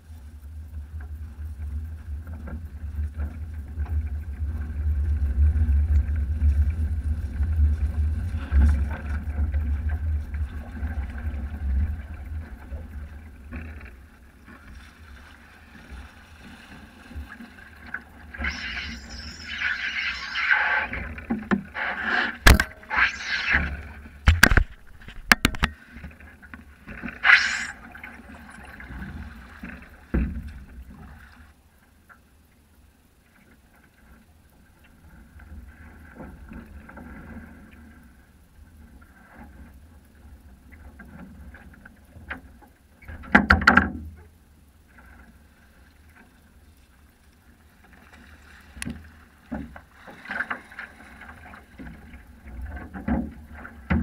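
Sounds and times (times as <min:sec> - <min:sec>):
water lapping against hull: 0:00.0 - 0:31.6, 0:33.5 - 0:54.0
water splashes: 0:06.0 - 0:31.5
sharp knocks: 0:22.4 - 0:23.0.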